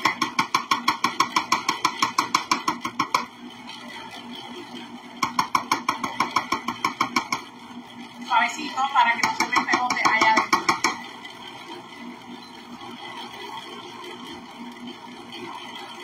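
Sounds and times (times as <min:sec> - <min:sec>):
ice cream maker humming: 0:00.0 - 0:16.0
measuring cup tapping on lid: 0:05.2 - 0:07.4, 0:09.2 - 0:11.0.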